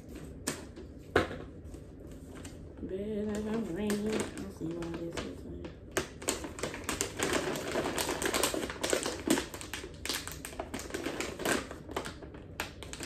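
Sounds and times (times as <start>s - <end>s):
plastic snack bag crinkling: 3.2s - 13.0s.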